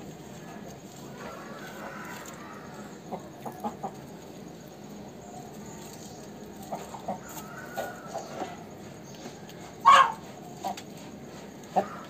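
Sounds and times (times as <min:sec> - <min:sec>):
rooster clucking: 0:09.6 - 0:12.0.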